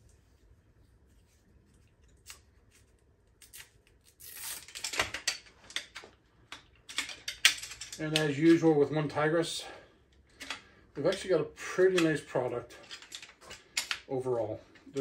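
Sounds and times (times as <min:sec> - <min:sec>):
metallic clicking and rattling: 0:04.7 - 0:08.6.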